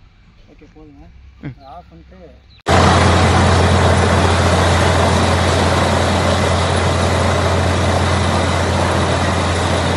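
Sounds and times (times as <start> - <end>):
drilling rig droning: 2.7 - 9.9.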